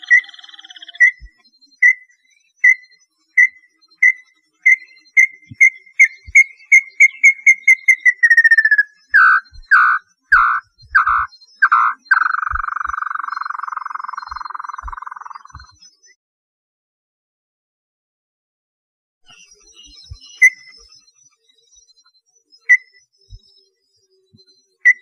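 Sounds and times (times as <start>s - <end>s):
bird trill: 0.0s - 15.8s, 19.3s - 21.2s, 22.6s - 23.4s, 24.6s - 25.0s
bird whistled notes: 0.0s - 15.8s, 19.3s - 21.1s, 22.6s - 23.6s, 24.7s - 25.0s
buzzy bird trill: 0.0s - 15.8s.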